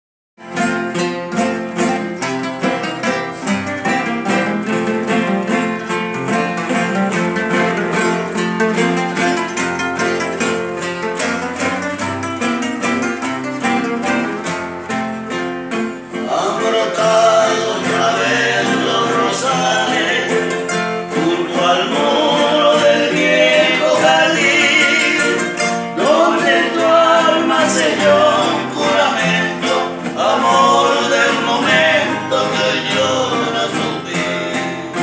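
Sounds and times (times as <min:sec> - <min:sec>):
plucked acoustic guitar melody: 0:00.4 - 0:35.0
strummed guitar chords: 0:00.4 - 0:35.0.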